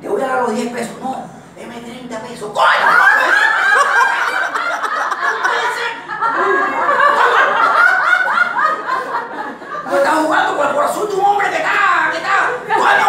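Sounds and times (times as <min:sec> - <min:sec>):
group of people laughing: 0:02.8 - 0:10.5.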